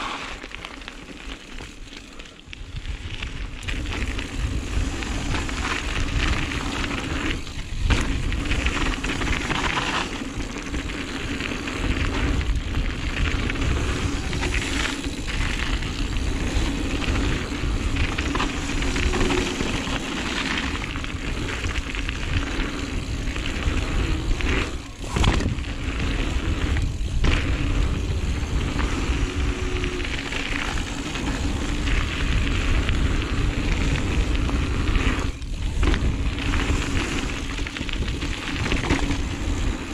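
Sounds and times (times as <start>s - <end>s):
bike frame rattling: 0.0s - 39.9s
tyres rumbling on gravel: 0.0s - 39.9s
wind buffeting microphone: 10.4s - 39.9s.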